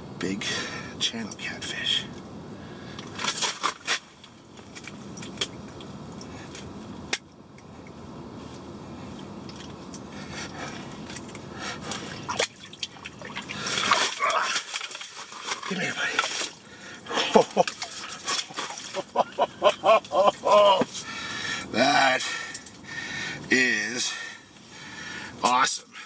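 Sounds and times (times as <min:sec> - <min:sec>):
steady low water rush: 0:02.0 - 0:26.0
water splashing and dripping: 0:11.1 - 0:16.6.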